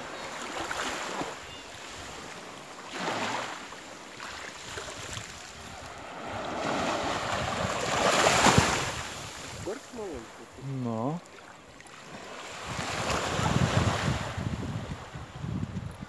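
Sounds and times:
small waves washing on beach: 0.0s - 16.0s.

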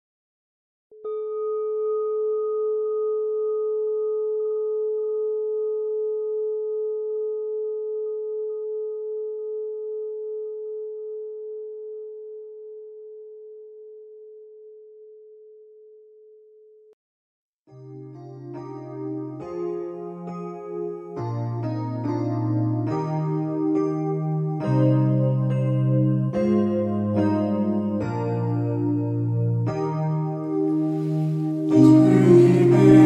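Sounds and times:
singing bowl ringing: 1.0s - 4.8s.

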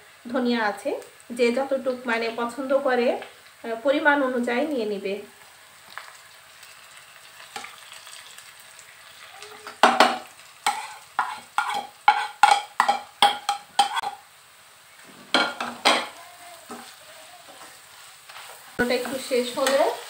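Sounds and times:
onions sizzling in oil: 0.0s - 20.0s
spatula scraping and knocking: 10.7s - 14.2s.

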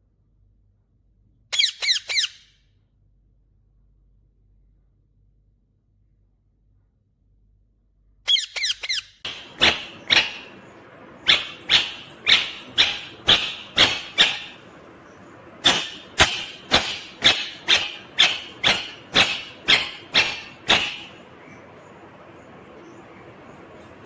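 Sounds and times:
parakeet screeching: 1.5s - 2.5s, 8.3s - 21.6s
parakeet whistles: 1.6s - 2.5s, 11.2s - 14.7s, 15.6s - 21.6s.

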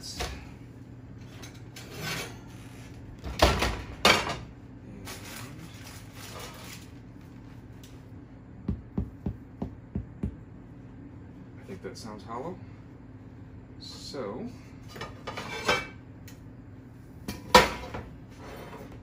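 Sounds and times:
knock on bread loaf: 8.6s - 10.4s.

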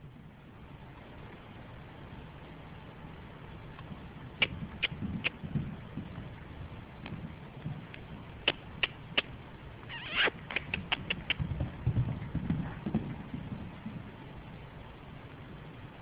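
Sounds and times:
horse hoofbeats in soft footing: 3.8s - 15.2s
sharp clicks: 7.9s - 11.4s.

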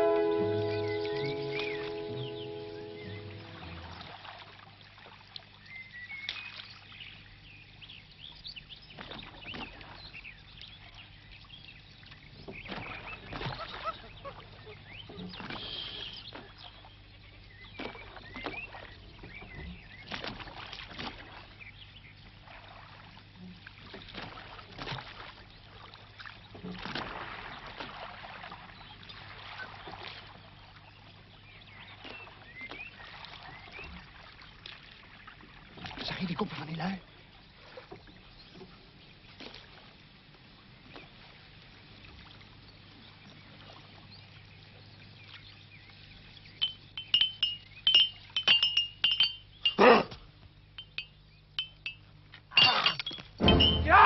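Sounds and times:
faint steady hum: 30.4s - 54.0s.

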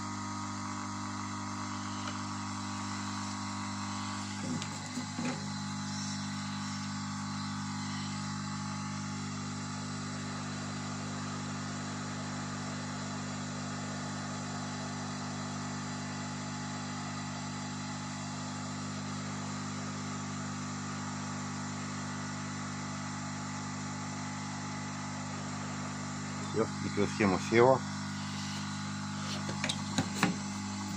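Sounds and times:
hot air station fan hum: 0.0s - 9.4s, 25.2s - 30.9s.

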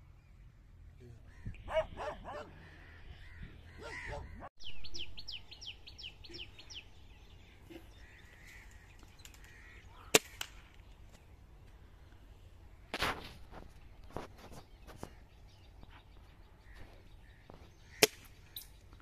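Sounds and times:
down-slurred bird chirps: 0.0s - 11.4s
birds calling: 0.0s - 19.0s.

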